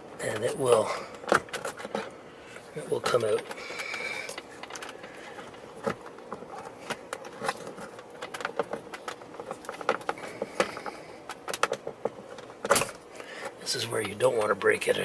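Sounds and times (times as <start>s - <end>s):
plastic clicks and creaks: 3.0s - 14.6s.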